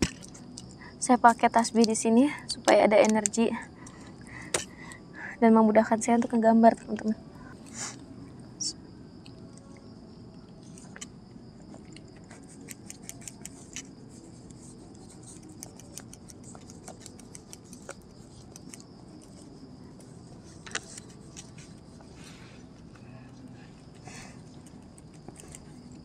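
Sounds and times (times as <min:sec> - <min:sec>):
pen scratching on paper: 0:12.3 - 0:19.5.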